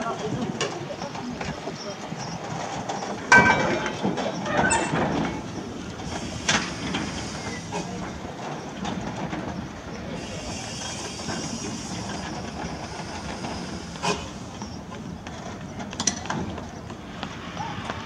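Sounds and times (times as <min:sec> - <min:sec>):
steam locomotive rumble and clank: 0:00.0 - 0:18.0
steam hissing: 0:05.9 - 0:08.3, 0:10.0 - 0:14.8.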